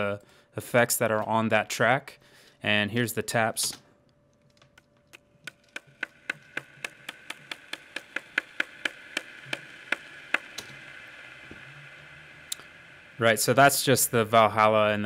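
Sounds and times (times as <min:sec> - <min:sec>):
skateboard taps with reverb: 0:05.5 - 0:10.5
lingering reverb wash: 0:10.3 - 0:15.0.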